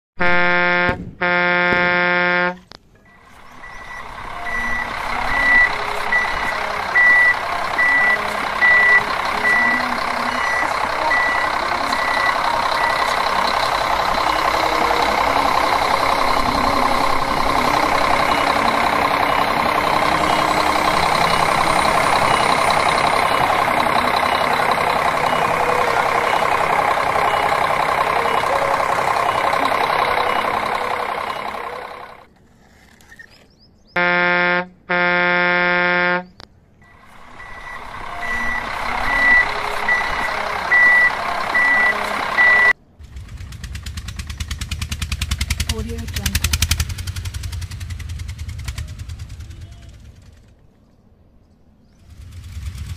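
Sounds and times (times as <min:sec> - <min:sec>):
horn blast: 0:00.2 - 0:02.7, 0:34.0 - 0:36.3
reversing alarm beeping: 0:00.2 - 0:32.3, 0:34.0 - 0:42.8
heavy vehicle engine running: 0:00.2 - 0:32.7, 0:33.7 - 0:52.9.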